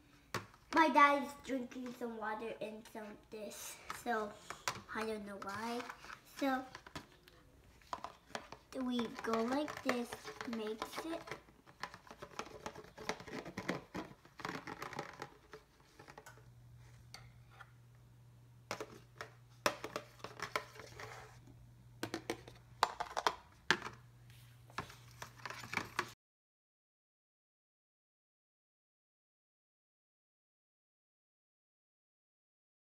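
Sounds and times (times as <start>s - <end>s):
spoon stirring in plastic container: 3.8s - 17.7s, 18.7s - 21.4s, 22.0s - 26.1s
low steady hum: 13.3s - 26.0s.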